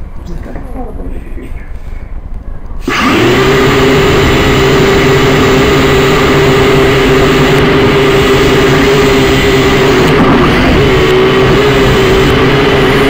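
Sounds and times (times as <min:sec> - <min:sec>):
drone motors whining: 0:02.8 - 0:13.0.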